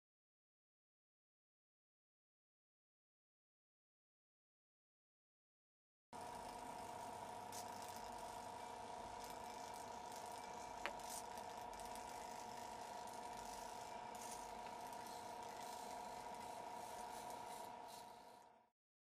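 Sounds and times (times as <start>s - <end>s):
faint electrical hum: 6.2s - 18.6s
small servos whirring: 6.2s - 18.6s.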